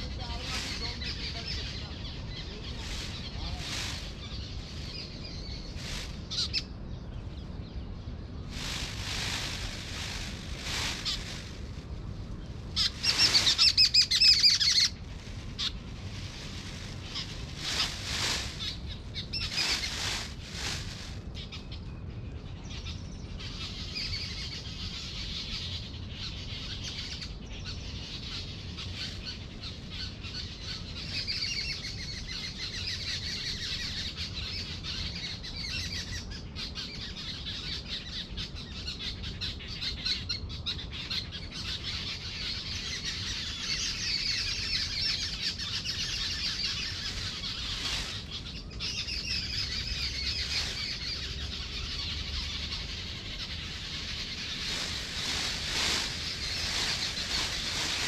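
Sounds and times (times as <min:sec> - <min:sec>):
low rumble: 0:00.0 - 0:22.6
birds chirping: 0:00.0 - 0:58.0.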